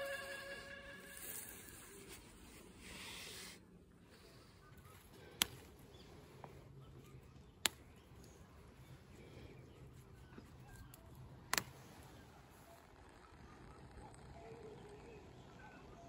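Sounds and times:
flower stems snapping: 5.0 - 5.9, 7.5 - 8.5, 10.6 - 11.9.

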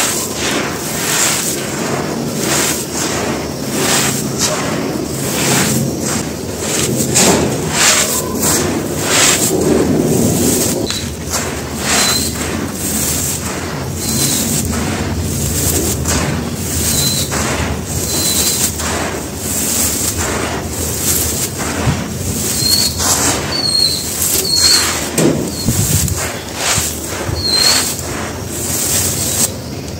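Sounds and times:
hands crunching gritty stone: 0.0 - 29.9.

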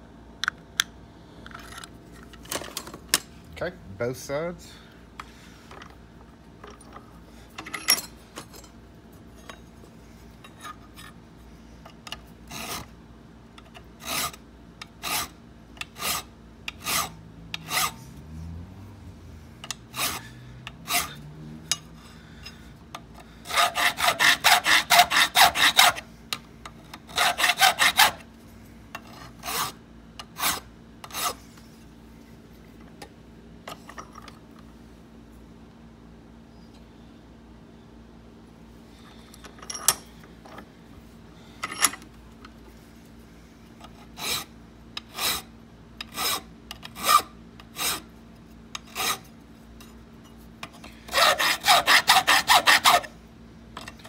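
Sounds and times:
hand file rasping on metal: 12.5 - 12.9, 14.0 - 18.0, 19.8 - 21.3, 23.4 - 26.0, 27.1 - 28.3, 29.1 - 31.4, 44.0 - 48.1, 48.8 - 49.3, 51.1 - 53.2.

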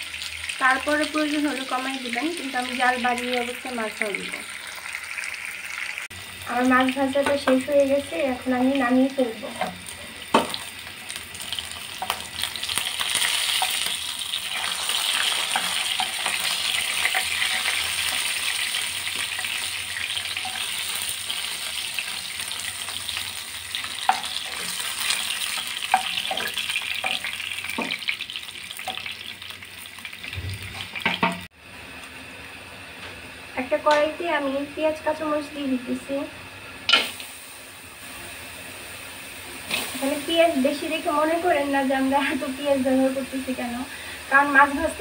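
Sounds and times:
fish sizzling in hot oil: 0.0 - 31.6, 36.9 - 45.0
spatula tapping and scraping: 24.0 - 28.0.

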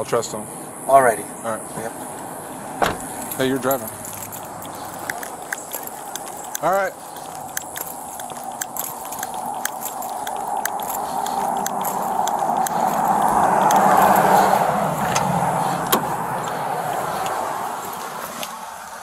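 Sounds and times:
vehicle driving past: 7.3 - 19.0.

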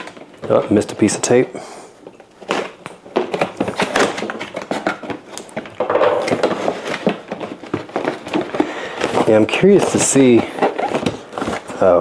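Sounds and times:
packing tape slit: 2.4 - 11.8
cardboard flaps scraping and rustling: 2.4 - 12.0.

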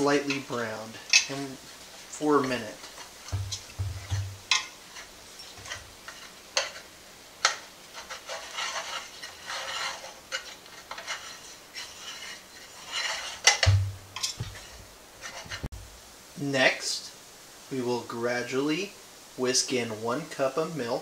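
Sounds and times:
utensil scraping a metal pot: 0.0 - 15.7
utensil knocking against pot: 3.3 - 4.6, 13.6 - 14.6.

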